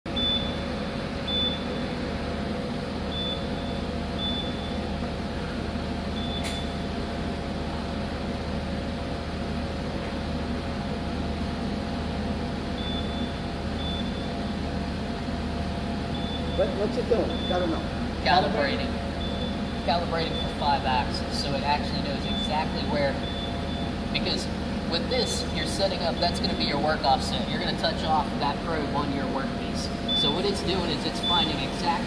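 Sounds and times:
machine hum: 0.1 - 32.0
sharp click: 6.4 - 6.7.

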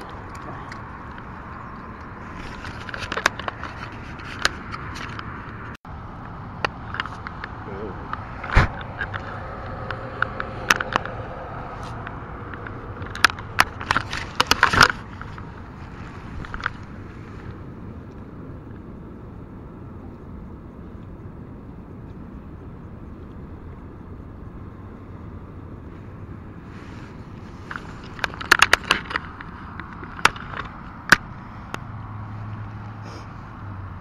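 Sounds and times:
fishing gear clicking and rustling: 0.0 - 5.8, 6.6 - 17.8, 25.8 - 31.8.

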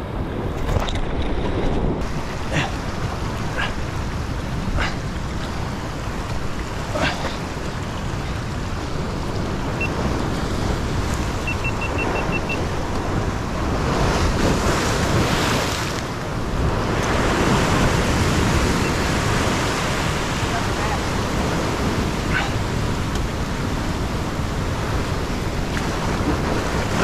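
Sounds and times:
ocean surf washing over rocks: 0.1 - 27.0.

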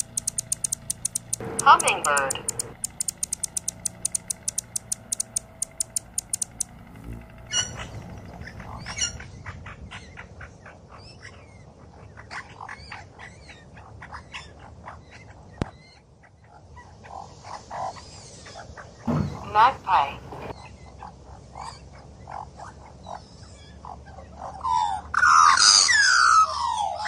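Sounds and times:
hummingbird chip notes: 0.0 - 9.2, 19.1 - 20.5
magpie harsh notes and clicks: 0.0 - 9.2.

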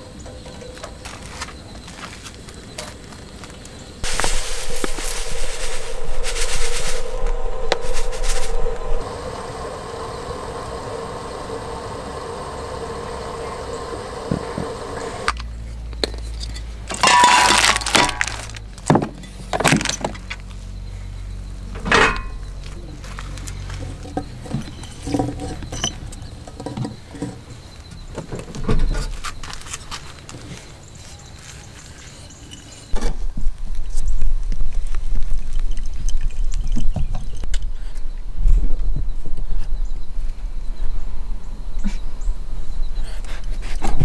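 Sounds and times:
quiet steady noise: 0.0 - 44.0
loud hissing: 4.0 - 15.4.

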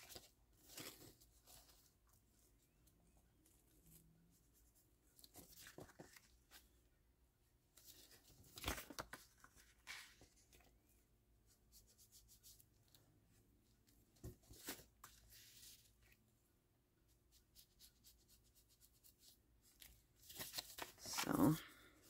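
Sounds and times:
paper rustling: 0.0 - 2.6, 5.1 - 6.8, 7.7 - 10.8, 14.2 - 16.2, 19.6 - 21.6.

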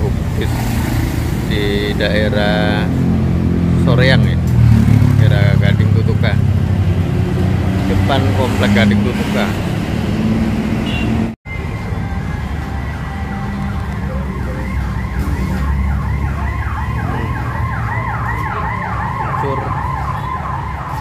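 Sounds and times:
road traffic rumble: 0.0 - 21.0
siren sweeping downward: 6.3 - 21.0.

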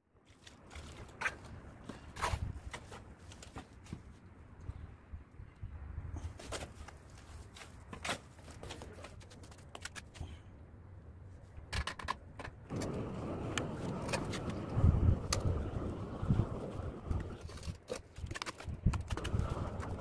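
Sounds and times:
steady low rumble: 12.6 - 17.5.

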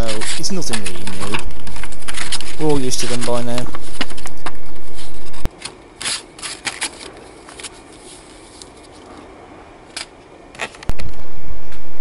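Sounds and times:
packaging rustling and clicking: 0.0 - 4.6, 5.5 - 9.1
loud steady background noise: 0.0 - 12.0.

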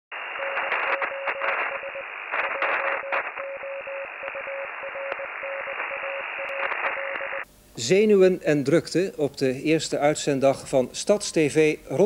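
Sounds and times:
radio static crackling: 0.1 - 7.5
morse code beeping: 0.4 - 7.3.

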